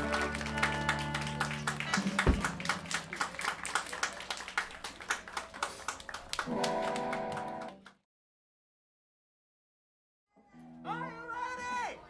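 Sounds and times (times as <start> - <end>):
hand clapping and applause: 0.0 - 8.0.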